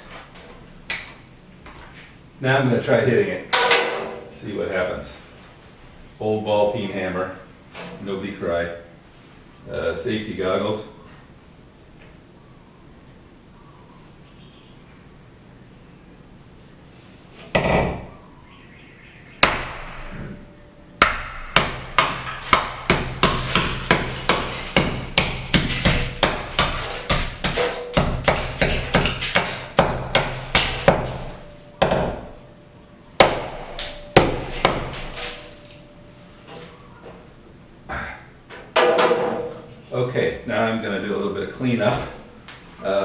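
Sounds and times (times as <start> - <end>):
hammer striking glass: 19.4 - 20.0, 21.0 - 32.4, 33.2 - 35.8.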